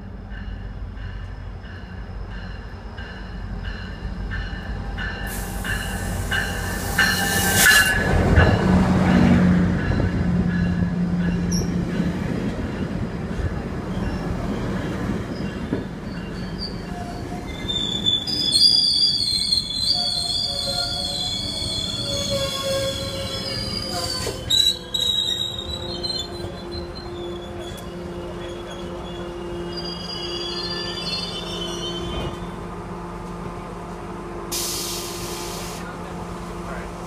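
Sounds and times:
train rolling and braking: 0:00.0 - 0:37.0
high brake squeal: 0:16.0 - 0:32.5
air hiss: 0:34.5 - 0:35.8.

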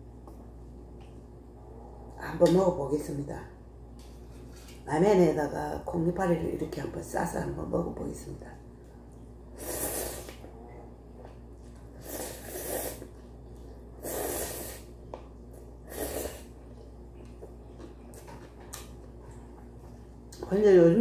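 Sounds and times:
noodles slurping: 0:09.6 - 0:10.7, 0:11.9 - 0:13.3.

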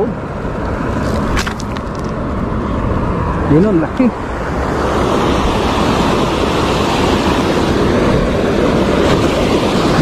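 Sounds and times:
river rushing over a weir: 0:00.0 - 0:10.0.

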